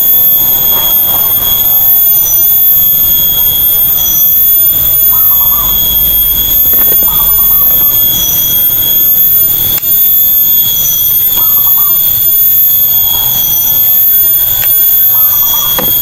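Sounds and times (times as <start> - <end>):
steady high-pitched whine: 0.0 - 16.0
sharp clicks: 14.3 - 15.0.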